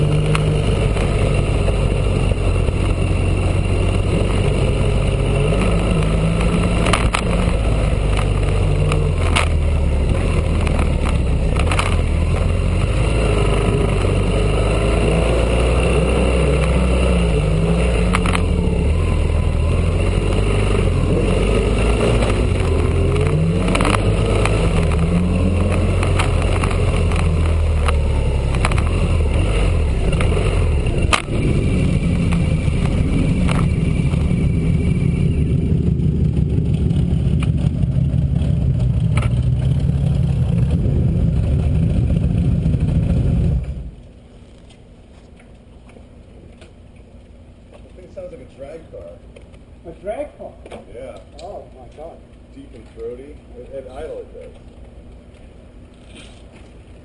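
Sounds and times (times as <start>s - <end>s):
motorcycle engine revving: 0.0s - 44.2s.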